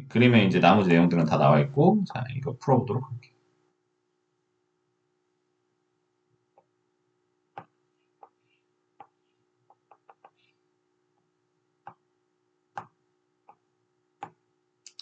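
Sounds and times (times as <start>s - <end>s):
faint steady hum: 0.0s - 15.0s
stylus tapping tablet screen: 7.5s - 10.5s, 11.2s - 12.1s, 12.7s - 14.4s.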